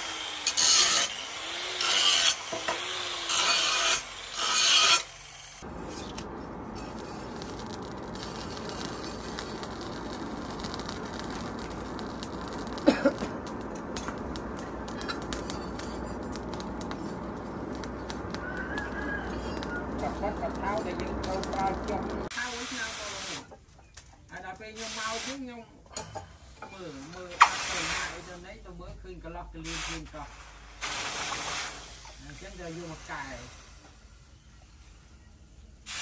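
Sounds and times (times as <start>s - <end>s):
angle grinder cutting steel: 0.0s - 22.5s
forge fire rushing and crackling: 5.6s - 23.2s.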